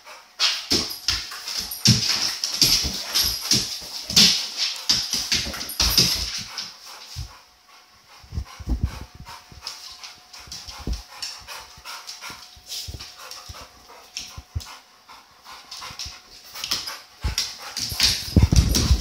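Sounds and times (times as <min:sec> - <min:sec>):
dog panting: 0:00.0 - 0:19.0
dog claws clicking on floor: 0:00.4 - 0:07.2, 0:15.5 - 0:19.0
dog paws thumping: 0:00.7 - 0:07.4, 0:08.3 - 0:14.8, 0:15.6 - 0:19.0.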